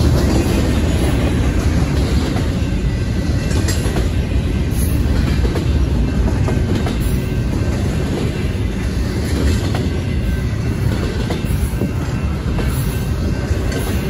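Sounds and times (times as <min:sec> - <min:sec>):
rumble of steel wheels on rail: 0:00.0 - 0:14.0
wheels clacking over rail joints: 0:00.0 - 0:14.0.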